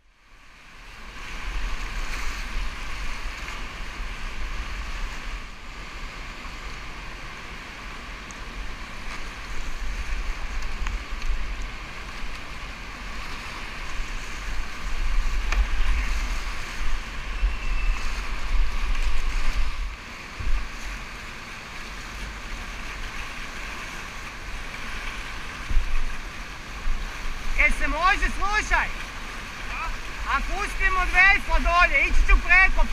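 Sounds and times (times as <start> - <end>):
whitewater river rushing: 0.2 - 32.9
wind buffeting microphone: 13.0 - 20.9.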